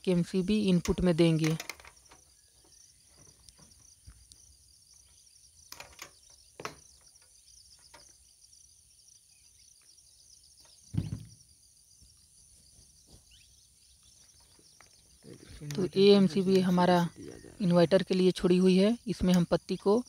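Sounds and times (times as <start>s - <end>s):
loud thump: 10.9s - 11.4s.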